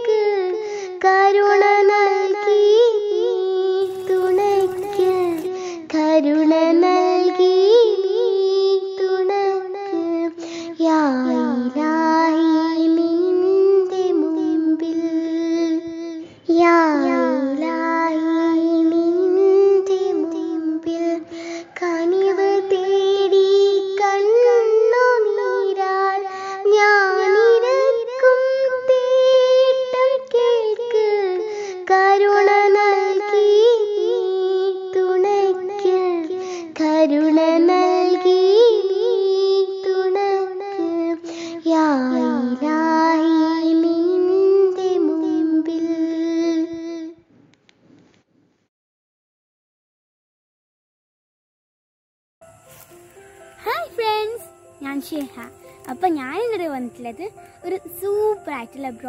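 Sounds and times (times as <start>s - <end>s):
high-pitched voice singing: 2.9s - 5.6s, 53.6s - 59.0s.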